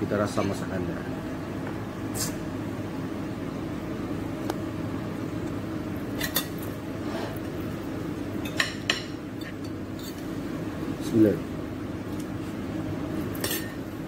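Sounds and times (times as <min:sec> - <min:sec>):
low machinery hum: 0:00.0 - 0:14.0.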